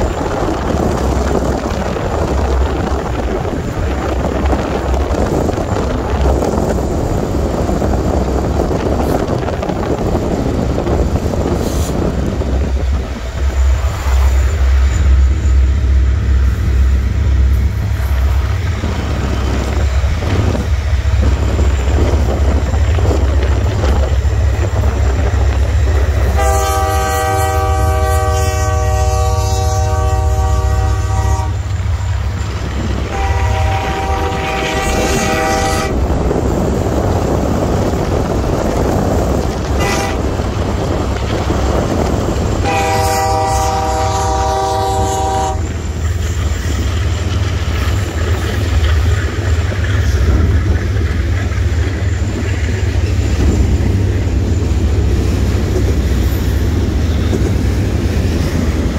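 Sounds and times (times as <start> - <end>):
low rumble: 0.0 - 42.7
locomotive air horn blast: 26.3 - 31.7, 33.0 - 36.0, 39.8 - 40.3, 42.6 - 45.7.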